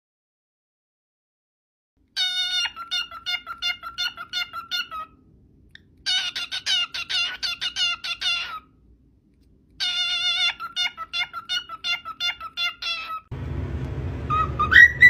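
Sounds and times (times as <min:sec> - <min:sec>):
cockatiel chirping: 0:02.2 - 0:05.2, 0:06.1 - 0:08.7, 0:09.8 - 0:13.3, 0:14.3 - 0:15.0.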